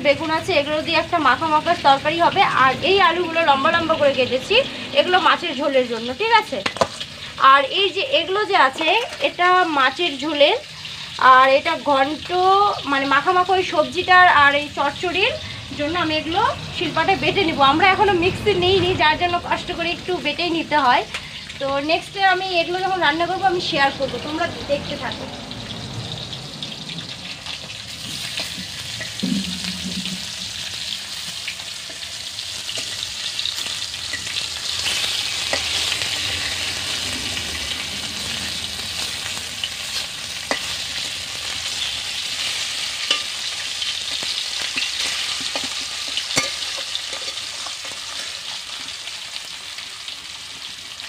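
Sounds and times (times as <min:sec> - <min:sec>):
fish sizzling in oil: 0:00.0 - 0:18.1, 0:19.2 - 0:51.0
metal spatula scraping pan: 0:27.6 - 0:37.0, 0:37.7 - 0:48.4.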